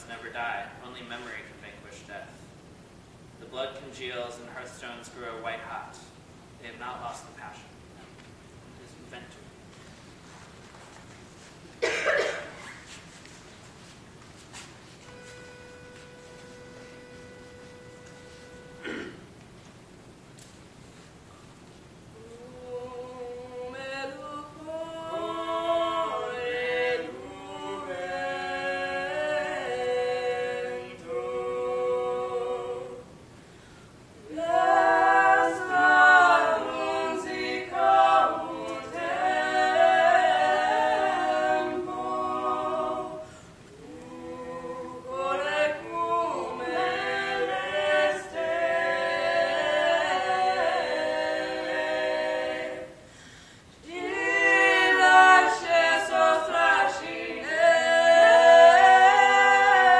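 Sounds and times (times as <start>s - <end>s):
voices singing a cappella: 22.1s - 59.9s.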